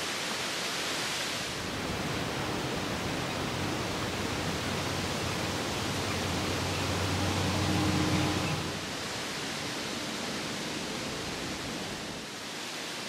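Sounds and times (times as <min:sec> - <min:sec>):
strong wind through trees: 0:00.0 - 0:13.0.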